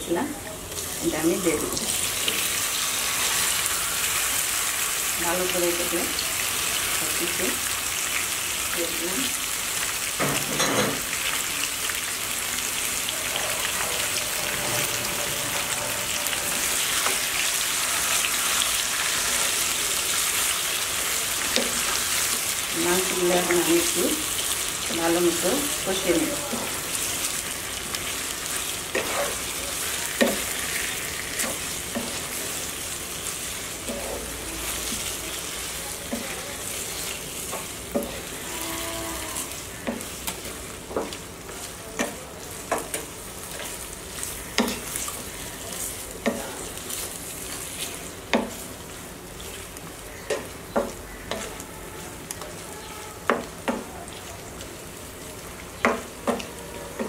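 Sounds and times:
chicken sizzling in hot oil: 0:00.1 - 0:57.0
spatula scraping a pan: 0:13.2 - 0:17.4, 0:28.5 - 0:32.5.

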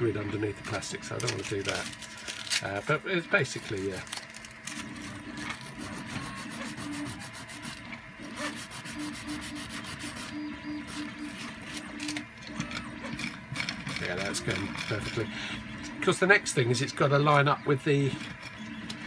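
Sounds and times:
hand-sanding rubbing strokes: 0:05.8 - 0:11.1.

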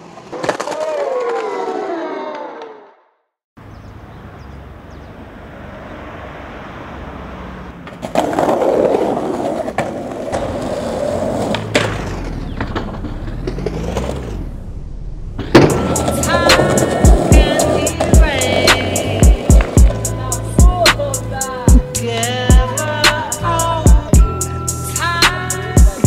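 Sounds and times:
skateboard sharp crack: 0:00.0 - 0:01.8, 0:07.8 - 0:14.2, 0:15.4 - 0:20.0
skateboard wheels rolling on concrete: 0:00.0 - 0:02.5, 0:04.2 - 0:23.8.

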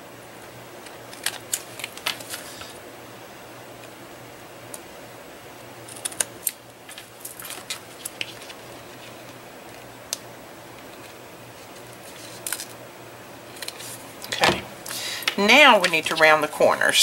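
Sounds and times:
scissors cutting foil tape and paper: 0:01.1 - 0:02.8, 0:05.9 - 0:08.6.

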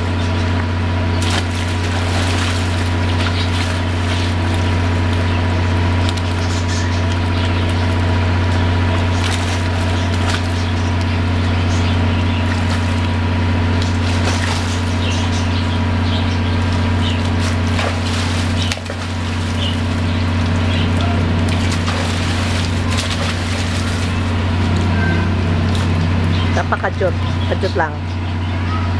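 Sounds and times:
water splashing in a pool: 0:00.0 - 0:26.4
low mechanical hum: 0:00.0 - 0:28.9.

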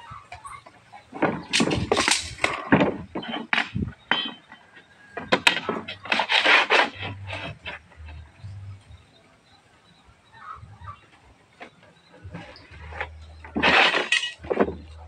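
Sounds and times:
metal straightedge scraping on plywood: 0:05.4 - 0:08.2, 0:12.3 - 0:14.9.

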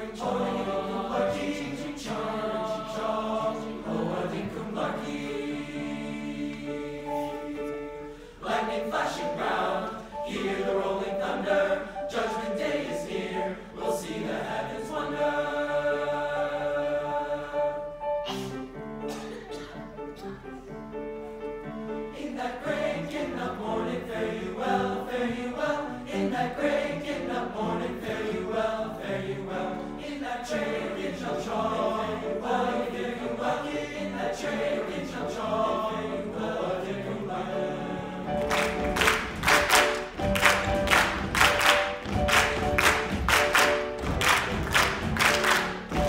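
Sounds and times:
men's choir singing: 0:00.0 - 0:17.9, 0:22.1 - 0:46.0
audience applause and cheering: 0:38.4 - 0:46.0.

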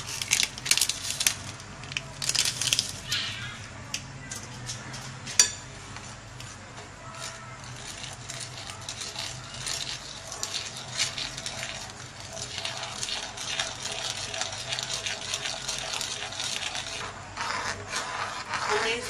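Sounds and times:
spoon scraping a pan: 0:07.1 - 0:19.0.

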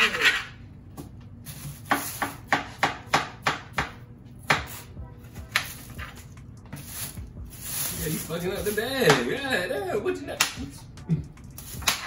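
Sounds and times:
knife chopping watermelon: 0:01.6 - 0:06.0.

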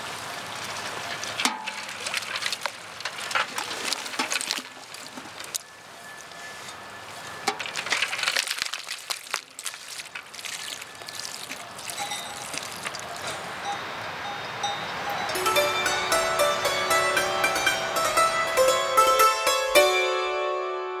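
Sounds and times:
water trickling in metal buckets: 0:00.0 - 0:16.1.

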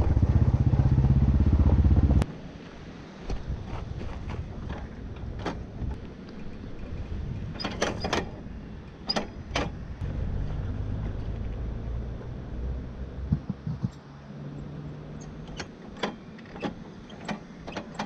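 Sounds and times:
low steady rumble: 0:00.0 - 0:02.5, 0:08.4 - 0:15.6.

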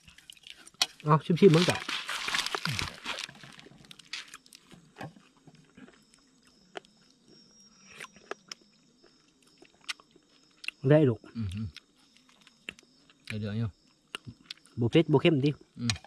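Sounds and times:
person chewing: 0:00.0 - 0:10.8.

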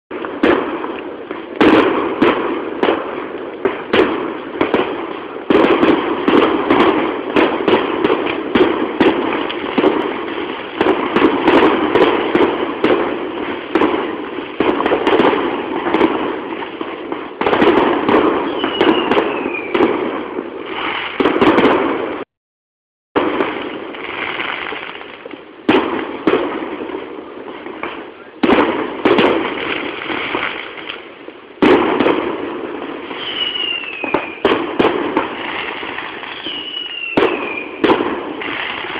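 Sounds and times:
fireworks crackling and banging: 0:00.1 - 0:22.3, 0:23.1 - 0:38.9
firework whistle falling in pitch: 0:18.5 - 0:19.8, 0:33.2 - 0:34.4, 0:36.2 - 0:37.8.

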